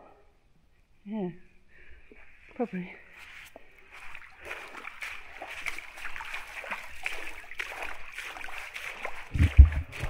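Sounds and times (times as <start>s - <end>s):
footsteps splashing in shallow water: 3.1s - 10.0s.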